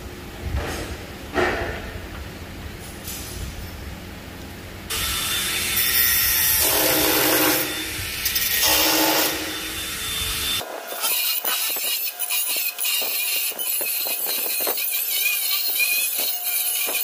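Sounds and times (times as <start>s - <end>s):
power tool whining under load: 4.9s - 17.0s.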